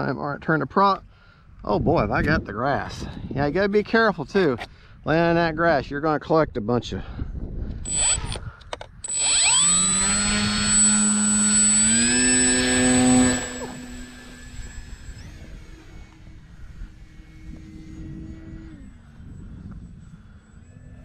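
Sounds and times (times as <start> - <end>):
electric motor propeller whine: 7.8 - 21.0.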